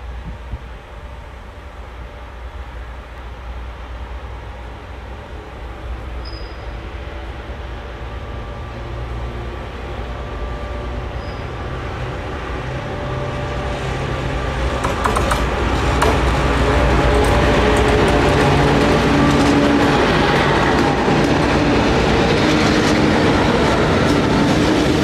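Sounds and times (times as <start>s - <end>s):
diesel locomotive engine drone: 0.0s - 25.0s
wheels clicking on rails: 14.6s - 25.0s.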